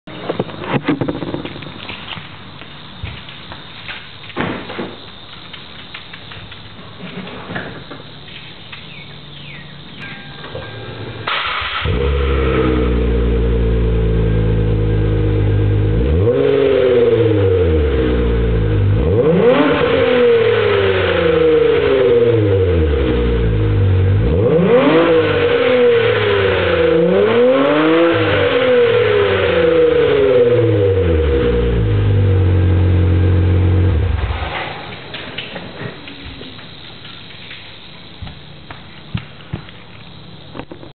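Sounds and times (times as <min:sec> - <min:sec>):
car engine idling: 0:07.8 - 0:16.3
car engine starting: 0:08.0 - 0:38.6
car engine revving: 0:10.9 - 0:34.7.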